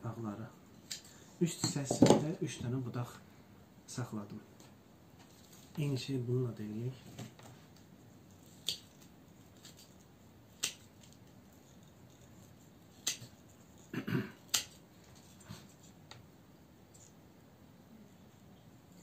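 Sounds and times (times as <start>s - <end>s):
pruning shears snipping: 10.6s - 11.2s, 13.0s - 13.4s, 14.5s - 14.8s.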